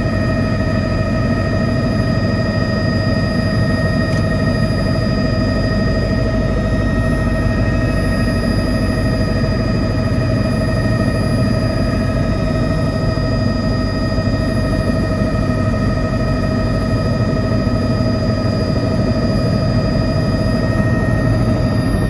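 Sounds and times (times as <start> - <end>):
helicopter engine whine: 0.0 - 22.0.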